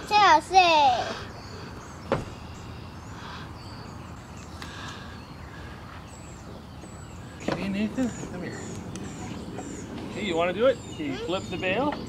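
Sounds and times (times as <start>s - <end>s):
low outdoor background rumble: 0.0s - 12.0s.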